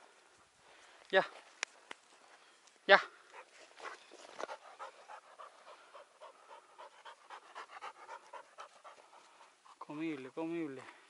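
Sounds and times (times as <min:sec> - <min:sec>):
dog panting: 0:03.3 - 0:09.9.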